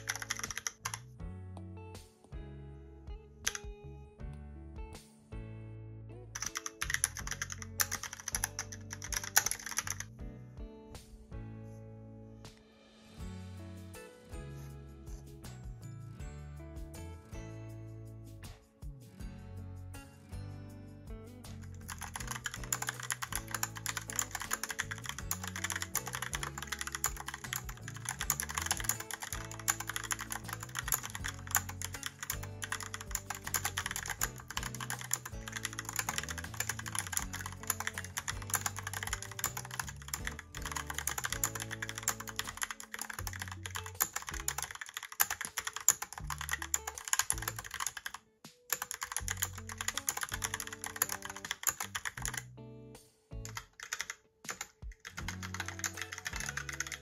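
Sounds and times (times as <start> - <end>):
mechanical keyboard typing: 0.0 - 1.1, 6.4 - 10.1, 21.6 - 52.4, 53.5 - 57.0
background music: 0.0 - 57.0.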